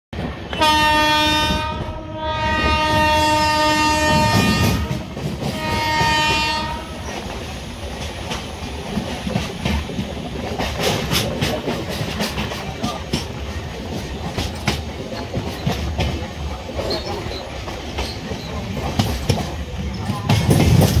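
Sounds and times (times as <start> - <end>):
train horn blasts: 0.5 - 7.1
train wheels clicking over rail joints: 1.4 - 21.0.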